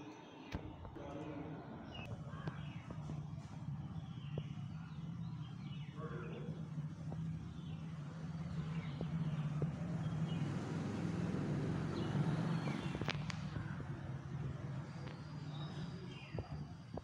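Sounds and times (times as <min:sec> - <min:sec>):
bird chirps: 0:00.3 - 0:17.0
steady low hum: 0:00.5 - 0:17.0.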